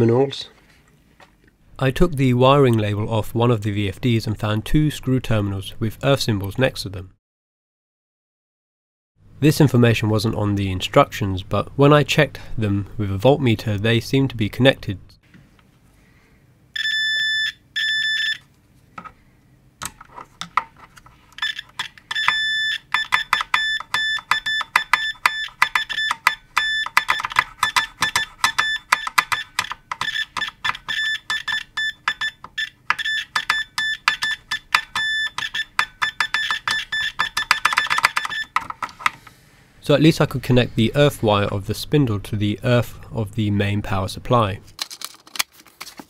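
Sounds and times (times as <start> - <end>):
multimeter beeping: 16.8 - 18.4, 21.4 - 38.6.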